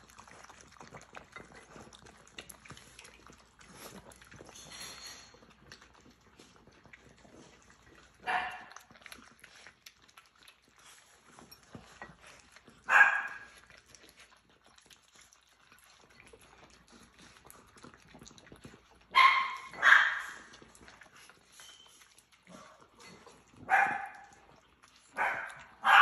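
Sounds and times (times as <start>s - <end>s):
dogs eating from bowls: 0.0s - 26.0s
small dog barking: 8.2s - 8.8s, 12.9s - 13.6s, 19.1s - 20.4s, 23.6s - 24.4s, 25.1s - 26.0s.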